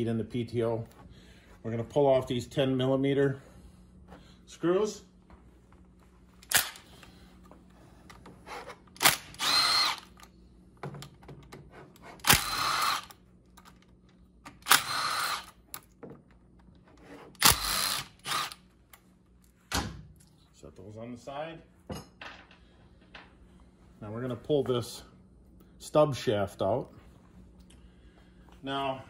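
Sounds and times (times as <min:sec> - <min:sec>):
drill click: 0:06.4 - 0:06.9, 0:08.9 - 0:10.3, 0:12.2 - 0:13.6, 0:14.5 - 0:15.9, 0:17.4 - 0:18.6
cordless drill whirring: 0:09.0 - 0:10.3, 0:12.2 - 0:13.2, 0:14.6 - 0:15.6, 0:17.4 - 0:18.7.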